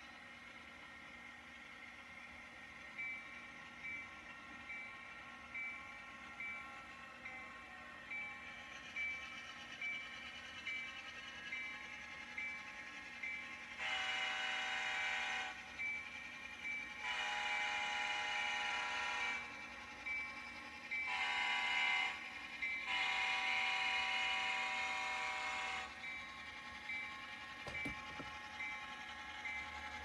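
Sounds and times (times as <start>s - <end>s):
model train horn blasts: 13.8s - 15.6s, 17.0s - 19.5s, 21.1s - 22.2s, 22.9s - 25.9s.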